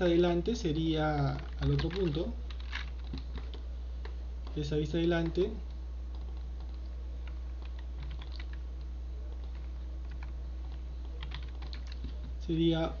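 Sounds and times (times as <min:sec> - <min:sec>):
steady low hum: 0:00.0 - 0:13.0
faint keyboard keystrokes: 0:01.3 - 0:04.6, 0:06.1 - 0:12.4.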